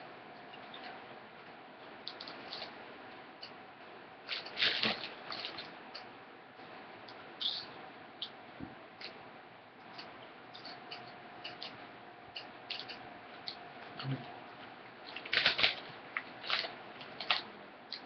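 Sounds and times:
chip bag crinkling: 4.3s - 5.7s, 15.1s - 17.5s
potato chips being chewed: 9.8s - 14.3s, 15.1s - 18.0s.

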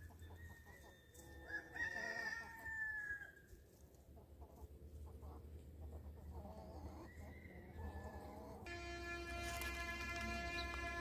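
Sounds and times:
rooster crowing: 1.4s - 3.3s.

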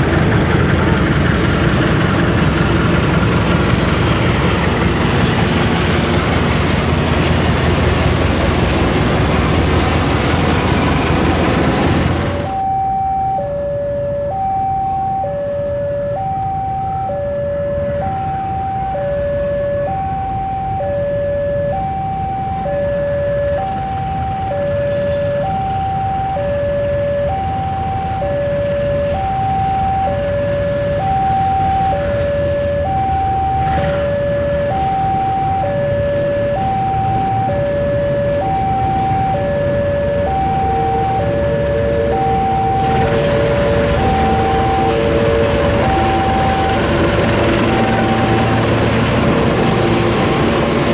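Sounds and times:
diesel locomotive engine rumble: 0.0s - 50.9s
traffic: 0.0s - 50.9s
level-crossing alarm two-tone signal: 12.4s - 50.7s.

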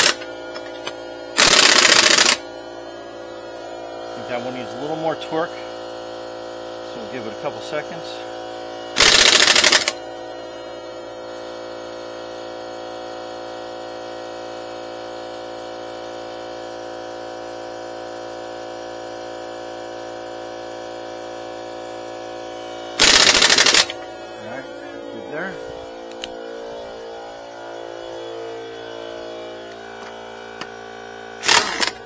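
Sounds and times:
air impact wrench hammering: 0.0s - 2.5s, 8.9s - 10.0s, 22.5s - 24.2s, 31.4s - 32.0s
air compressor motor running: 0.0s - 32.0s.

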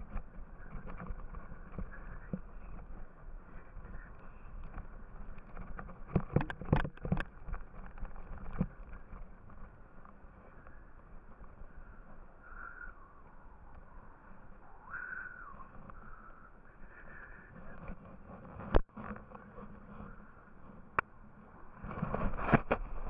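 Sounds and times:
ski scraping over snow: 0.0s - 14.0s.

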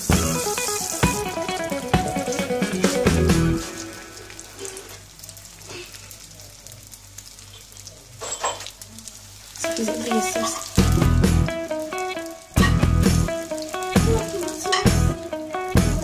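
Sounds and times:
background music: 0.0s - 4.6s, 9.8s - 16.0s
food sizzling in oil: 0.0s - 16.0s.

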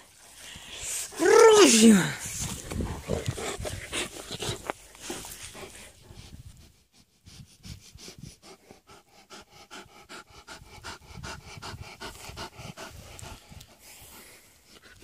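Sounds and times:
dog panting rapidly: 7.3s - 15.0s.

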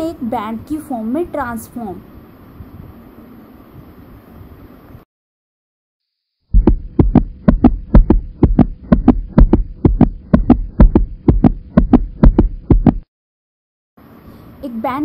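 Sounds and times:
faint steady hum: 0.0s - 5.0s, 14.0s - 15.0s.

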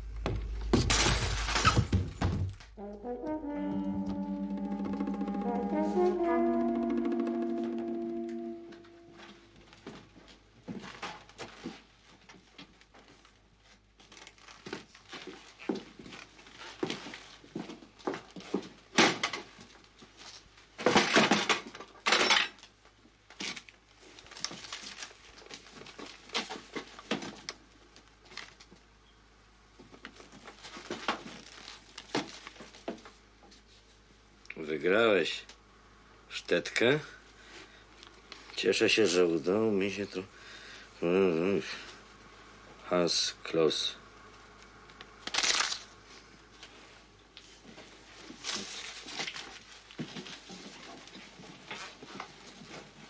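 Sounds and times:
footsteps: 0.0s - 3.0s, 3.6s - 11.8s.

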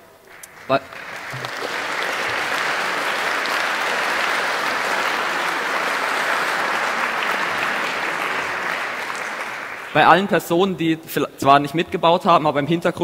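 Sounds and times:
audience applauding: 0.2s - 10.5s.

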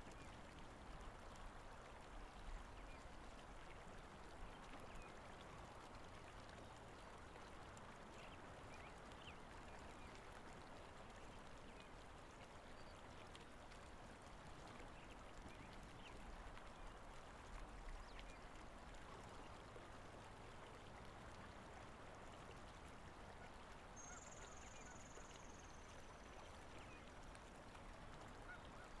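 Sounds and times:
soft outdoor hiss: 0.0s - 29.0s
faint bird chirps: 24.0s - 26.3s.

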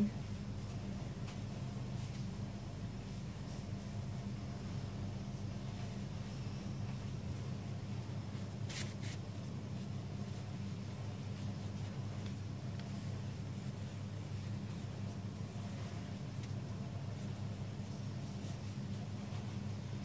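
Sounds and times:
steady low hum: 0.0s - 20.0s
marker stroking across paper: 7.3s - 20.0s.

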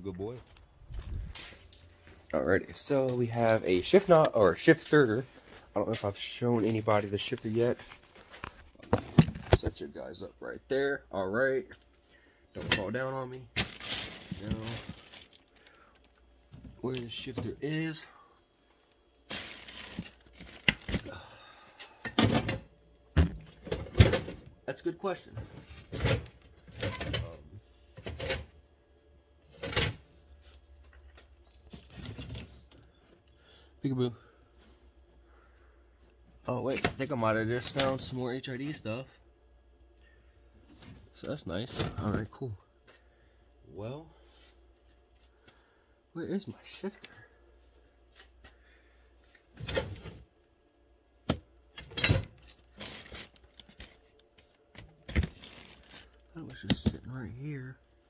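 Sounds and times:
car parts rustling and clattering: 2.9s - 9.8s, 12.6s - 17.6s, 21.8s - 24.6s, 25.2s - 28.6s, 29.4s - 33.0s, 49.1s - 50.4s, 51.2s - 57.0s.

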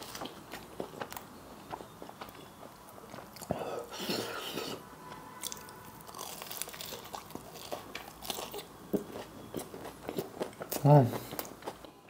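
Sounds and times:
mouth chewing: 0.0s - 11.9s
crunchy bite into crust: 5.4s - 10.8s.

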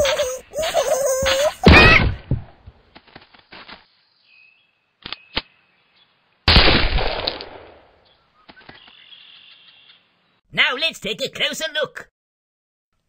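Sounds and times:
pistol shot: 6.5s - 7.9s.

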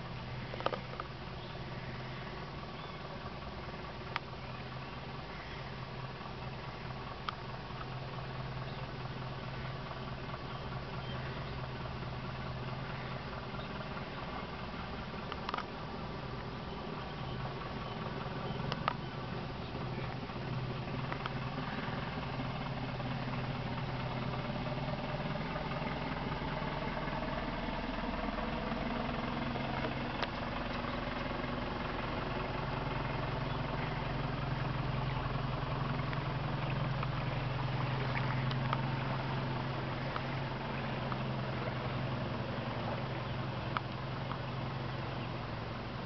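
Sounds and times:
truck engine humming: 0.0s - 46.0s
faint clicks: 0.5s - 1.1s, 7.2s - 8.0s, 15.3s - 15.8s, 18.6s - 19.1s, 20.1s - 21.4s, 36.0s - 38.9s
water washing from wheels: 5.3s - 46.0s.

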